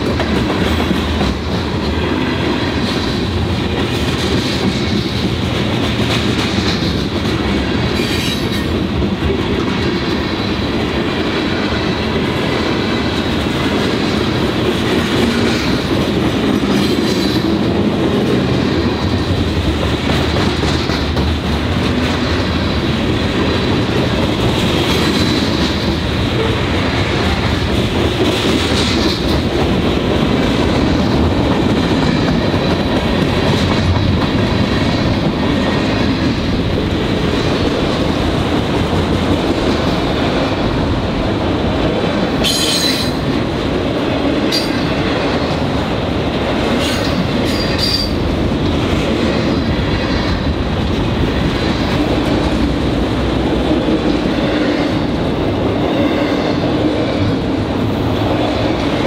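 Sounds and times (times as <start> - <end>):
freight cars rumbling on rails: 0.0 - 59.0.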